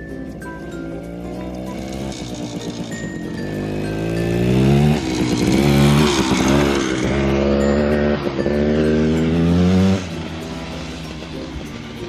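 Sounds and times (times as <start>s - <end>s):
dirt bike engine revving: 1.0s - 12.0s.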